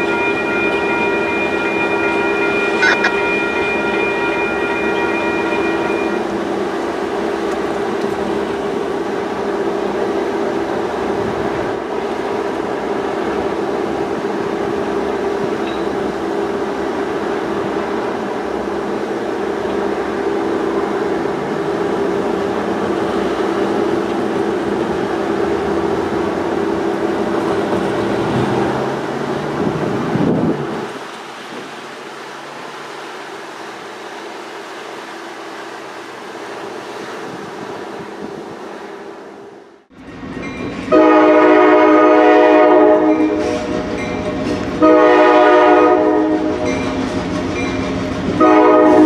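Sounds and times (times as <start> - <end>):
high-pitched tone: 0.0 - 6.3
train wheels rumbling on rail: 0.0 - 49.0.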